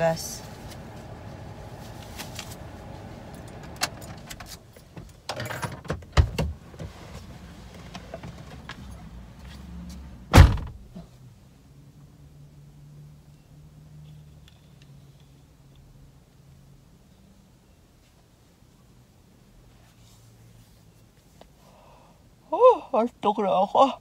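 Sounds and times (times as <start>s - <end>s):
clicks and rustling inside car: 0.7s - 9.6s
car door slamming: 10.3s - 11.0s
thump: 10.3s - 11.1s.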